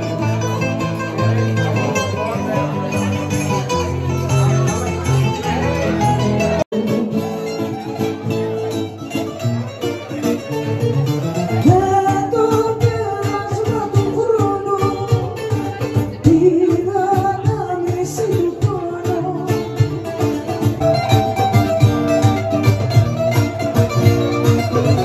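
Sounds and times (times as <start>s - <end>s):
bouzouki rapid plucked notes: 0.0s - 25.0s
guitar: 0.0s - 25.0s
person singing: 6.7s - 8.1s, 11.6s - 20.0s.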